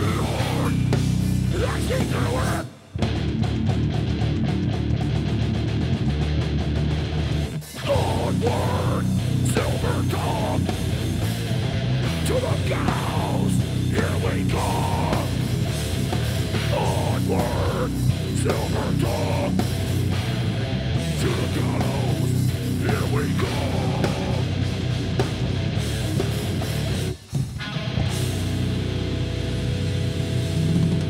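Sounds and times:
harsh shouted vocals: 0.0 - 3.0, 7.7 - 11.2, 12.0 - 15.8, 16.4 - 20.3, 21.0 - 24.9
bass guitar: 0.0 - 31.0
distorted electric guitar: 0.0 - 31.0
drums: 0.0 - 31.0.

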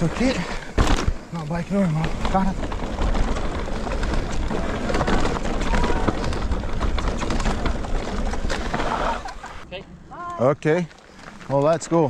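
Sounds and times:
bike clattering and rattling: 0.0 - 9.6
tyre rumbling: 0.0 - 9.6.

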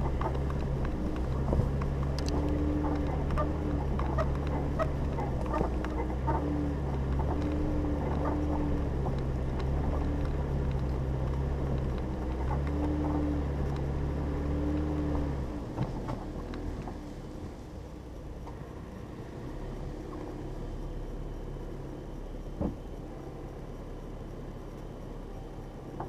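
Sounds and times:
tyres clicking over stones: 0.0 - 17.0
car engine at low speed: 0.0 - 26.0.

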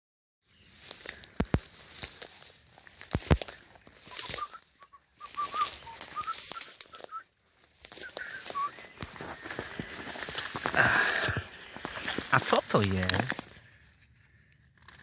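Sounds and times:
dry vegetation rustling and snapping: 0.7 - 15.0
short high chirps: 4.1 - 7.2.

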